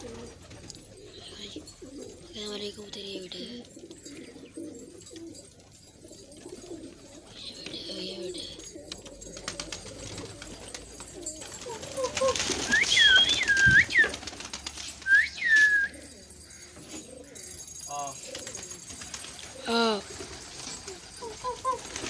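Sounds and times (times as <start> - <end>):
wings flapping: 0.0 - 1.0, 8.9 - 15.9, 18.1 - 22.0
pigeons cooing: 0.0 - 22.0
sliding whistles: 12.7 - 14.2, 15.0 - 16.0.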